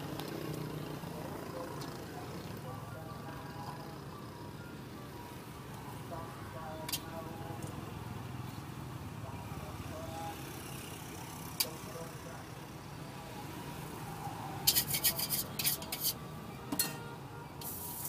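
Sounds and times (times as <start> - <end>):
metal utensils clinking on pots: 14.7 - 17.1.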